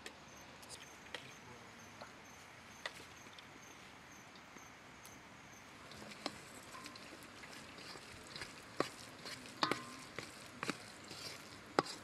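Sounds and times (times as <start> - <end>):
spoon stirring wet mixture: 5.8 - 12.0
spoon clinking on steel bowl: 9.6 - 10.2.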